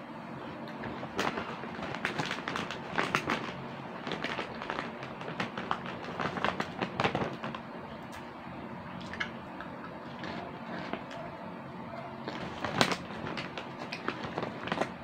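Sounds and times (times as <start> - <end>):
plastic snack bag crinkling: 0.7 - 7.6, 10.0 - 11.2, 12.2 - 15.0.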